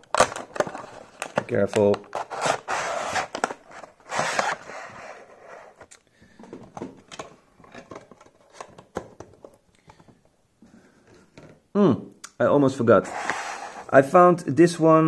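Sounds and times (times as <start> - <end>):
cardboard rustling and tearing: 0.0 - 5.8.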